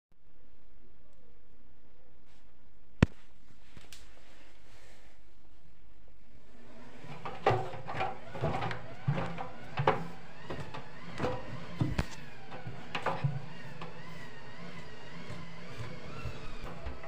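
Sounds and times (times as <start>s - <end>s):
washing machine drum clunking: 7.0s - 14.1s.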